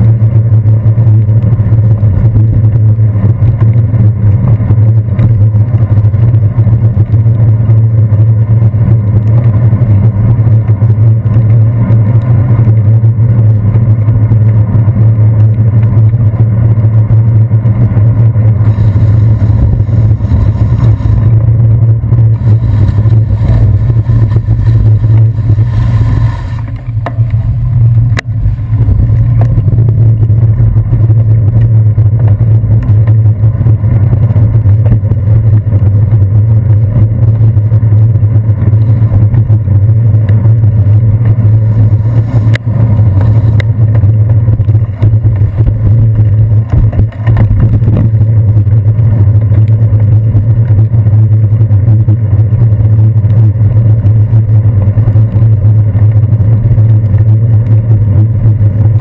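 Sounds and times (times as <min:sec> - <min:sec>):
road vibration and wind rumble: 0:00.0 - 0:59.0
city traffic: 0:18.6 - 0:31.7.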